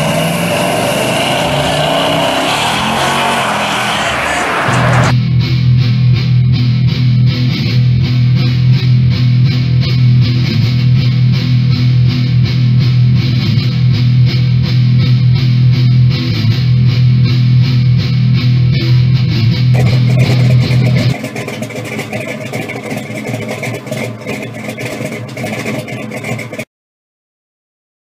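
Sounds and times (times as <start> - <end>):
guitar-led rock music: 1.9 - 21.2.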